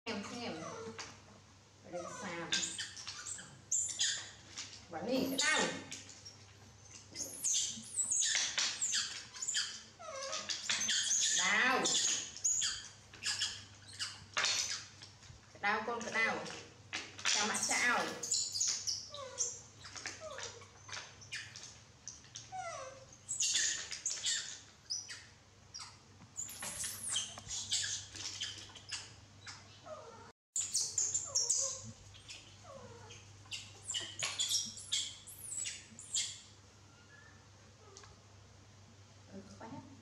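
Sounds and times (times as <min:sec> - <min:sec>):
baby monkeys squeaking: 0:02.0 - 0:15.0, 0:17.2 - 0:21.7, 0:22.5 - 0:36.5.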